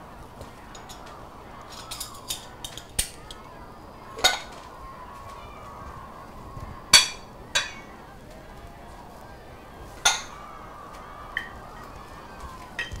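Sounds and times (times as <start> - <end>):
dishes clicking and tapping: 7.0 - 7.9, 10.0 - 10.4
ringing clink of dishes: 7.0 - 7.9, 12.8 - 13.0.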